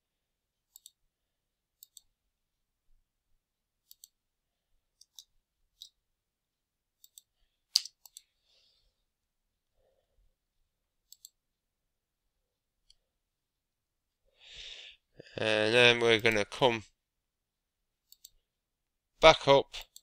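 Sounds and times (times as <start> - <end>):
computer mouse buttons clicking: 0.7 - 1.0, 1.8 - 2.1, 3.8 - 4.2, 5.0 - 6.0, 7.0 - 8.3, 11.1 - 11.4, 18.1 - 18.4.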